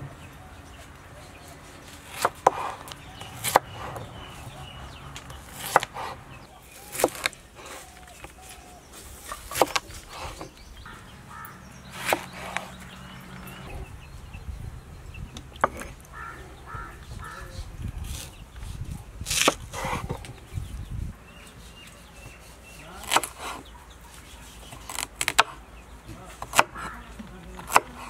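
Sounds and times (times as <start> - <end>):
knife chopping on wooden board: 2.1 - 4.2, 5.2 - 6.2, 6.8 - 7.4, 9.3 - 10.5, 12.0 - 12.7, 23.0 - 23.7, 26.3 - 27.0, 27.6 - 28.0.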